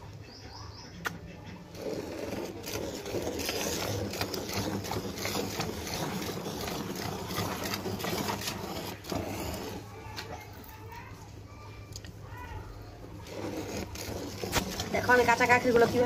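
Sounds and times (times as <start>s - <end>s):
milk squirting into a pot: 1.8s - 10.6s, 13.2s - 16.0s.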